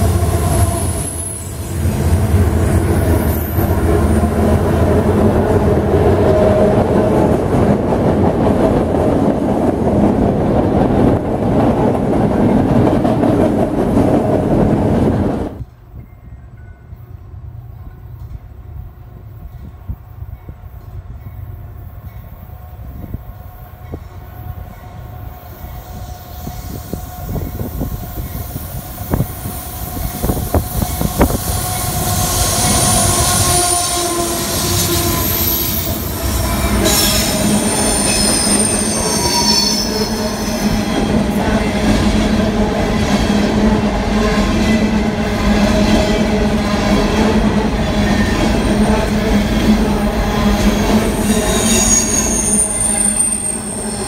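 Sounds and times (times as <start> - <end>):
diesel locomotives passing: 0.0 - 54.0
high wheel squeal: 31.8 - 41.1, 51.0 - 54.0.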